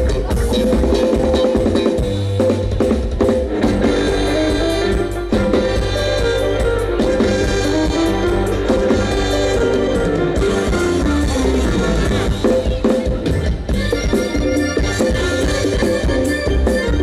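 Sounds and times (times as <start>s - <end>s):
band with drums and guitar: 0.0s - 17.0s.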